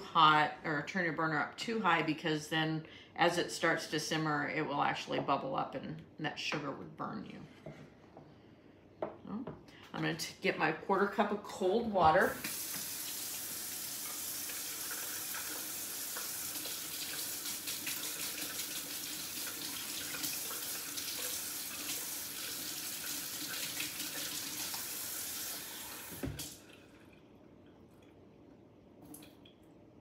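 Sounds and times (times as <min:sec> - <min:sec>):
faucet running into sink: 0:12.1 - 0:27.2.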